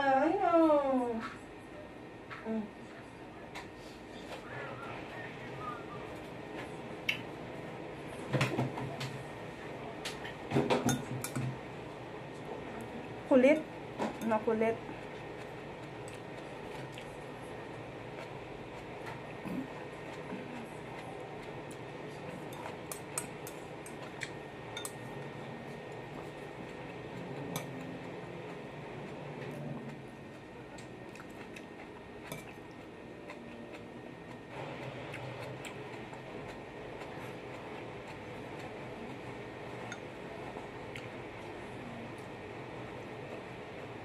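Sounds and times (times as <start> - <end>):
steady background hum: 0.0 - 44.0
chopsticks clinking on ceramic bowl: 24.7 - 25.0.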